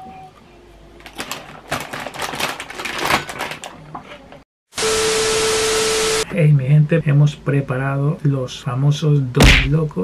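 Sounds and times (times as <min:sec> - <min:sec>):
chip bag rustling: 0:01.0 - 0:03.8
static hiss: 0:04.8 - 0:06.2.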